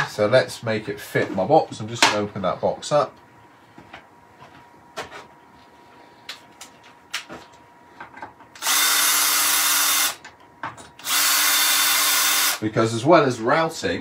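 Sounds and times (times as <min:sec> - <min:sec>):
cordless drill running: 0:08.6 - 0:10.2, 0:11.0 - 0:12.6.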